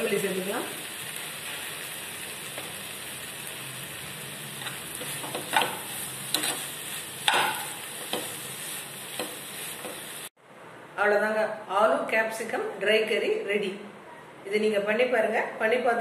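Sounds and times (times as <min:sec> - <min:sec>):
curry sizzling in a frying pan: 0:00.0 - 0:10.4
metal spatula scraping a pan: 0:04.6 - 0:10.1.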